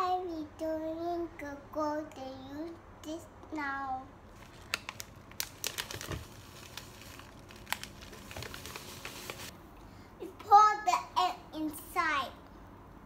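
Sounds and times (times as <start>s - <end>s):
plastic bag crinkling: 4.3s - 9.5s.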